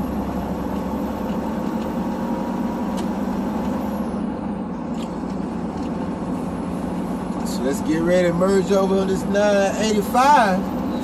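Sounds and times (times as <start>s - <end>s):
road noise: 0.0s - 11.0s
truck engine drone: 0.0s - 11.0s.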